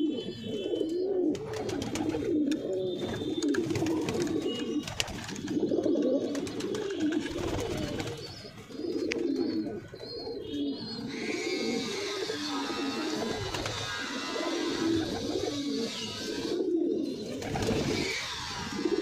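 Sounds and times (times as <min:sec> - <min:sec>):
pigeons cooing: 0:00.0 - 0:19.0.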